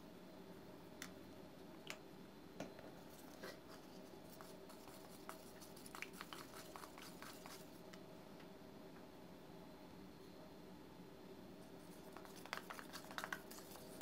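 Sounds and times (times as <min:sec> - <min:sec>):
low room hum: 0:00.0 - 0:14.0
stick stirring paste in a bowl: 0:03.1 - 0:07.8, 0:11.7 - 0:14.0.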